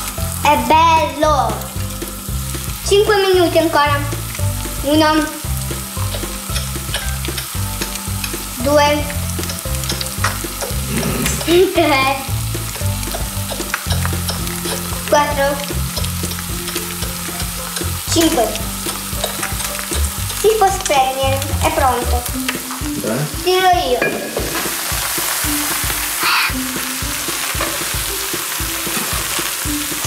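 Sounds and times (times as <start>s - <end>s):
eggs sizzling in oil: 0.0s - 30.0s
spatula scraping a pan: 12.5s - 20.4s.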